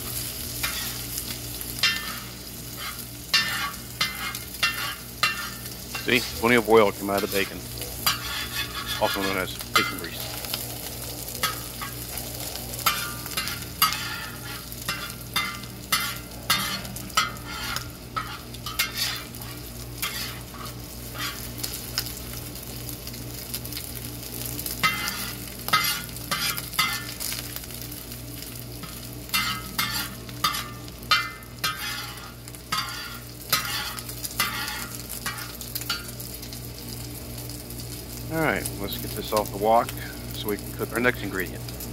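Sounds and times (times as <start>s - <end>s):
bacon sizzling in grease: 0.0s - 41.9s
metal spatula scraping pan: 0.6s - 1.1s, 1.8s - 6.6s, 8.0s - 10.0s, 12.8s - 21.5s, 24.8s - 27.2s, 28.8s - 36.1s.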